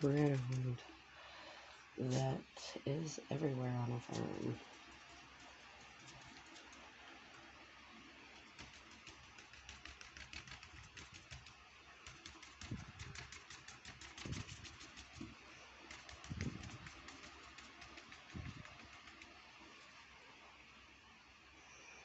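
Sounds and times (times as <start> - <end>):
paintbrush tapping on paper: 8.6 - 19.4.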